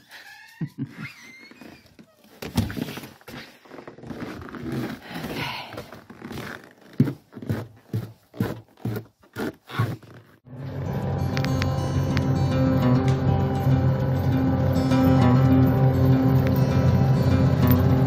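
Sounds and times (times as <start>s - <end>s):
heavy footsteps in snow: 2.9s - 10.3s.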